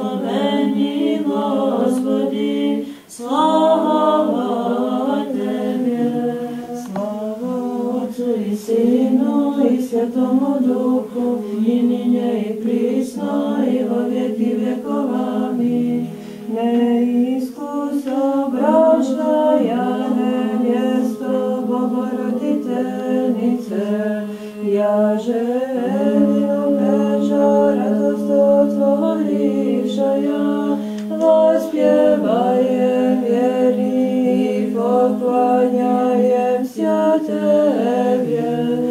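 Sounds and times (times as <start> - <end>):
unaccompanied choir chanting: 0.0 - 38.9.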